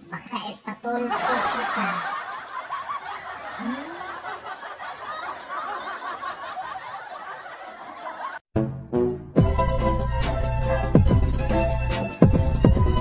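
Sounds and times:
crowd laughing: 1.0 - 8.4
music: 8.6 - 13.0.

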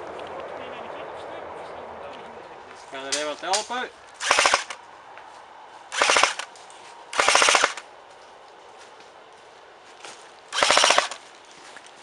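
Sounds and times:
airsoft rifle full-auto bursts: 4.2 - 4.8, 5.9 - 6.5, 7.1 - 7.9, 10.5 - 11.2.

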